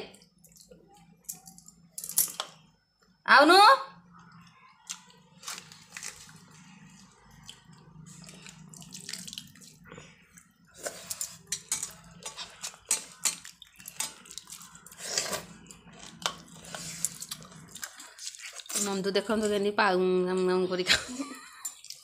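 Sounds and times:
wet splashing of rice: 0:08.2 - 0:09.8.

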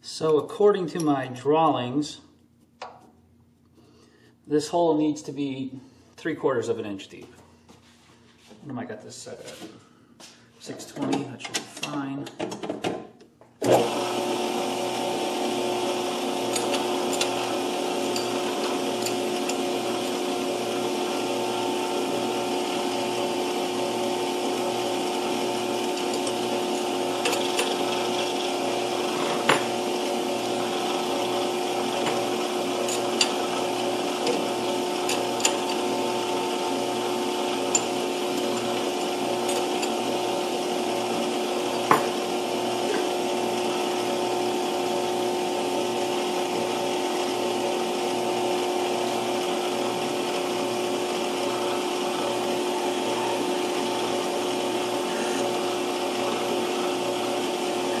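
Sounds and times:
drill cutting into metal: 0:13.6 - 0:58.0
metal lathe motor humming: 0:13.6 - 0:58.0.

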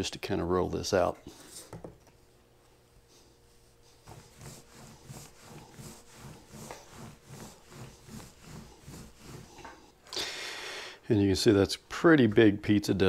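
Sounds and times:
rolling pin on dough: 0:03.4 - 0:10.0.

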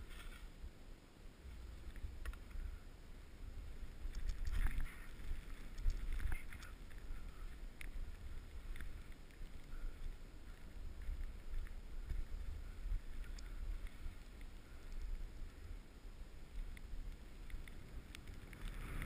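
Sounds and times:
faint scrapes: 0:00.0 - 0:00.6
skis sliding over packed snow: 0:00.0 - 0:19.0.

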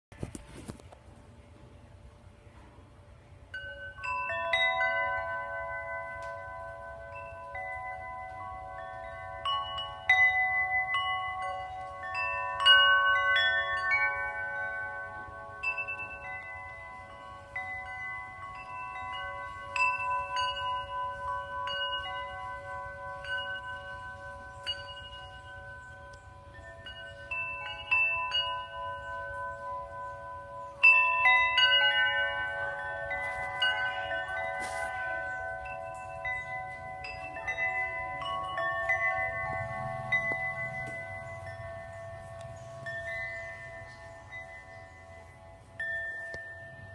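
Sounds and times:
tubular wind chimes ringing: 0:00.2 - 0:46.9.

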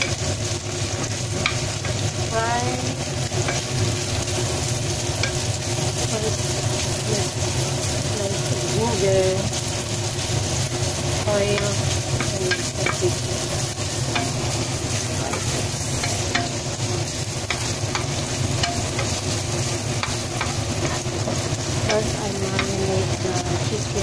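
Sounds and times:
chicken sizzling in oil: 0:00.0 - 0:24.0
spatula clicking against pan: 0:01.4 - 0:02.0, 0:03.4 - 0:03.8, 0:05.2 - 0:05.4, 0:11.5 - 0:13.2, 0:14.0 - 0:14.6, 0:15.3 - 0:23.2.

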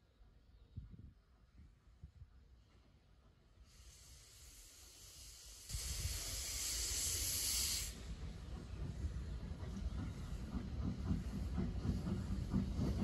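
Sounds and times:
steam hissing: 0:03.5 - 0:13.0.

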